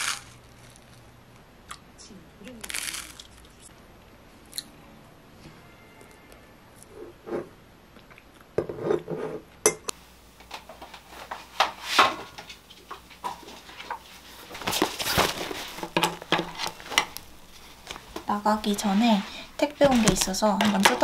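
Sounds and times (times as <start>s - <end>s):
spoon and dishes clinking: 9.7s - 9.9s
fabric bag rustling: 14.2s - 20.6s.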